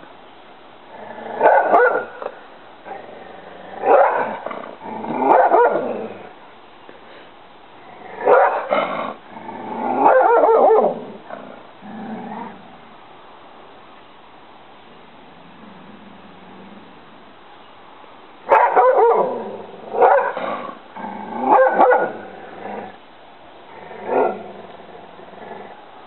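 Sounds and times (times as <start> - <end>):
dog barking: 1.4 - 2.2, 3.9 - 4.3, 5.3 - 5.8, 8.2 - 8.7, 10.0 - 10.9, 18.5 - 19.4, 20.0 - 20.4, 21.5 - 22.2.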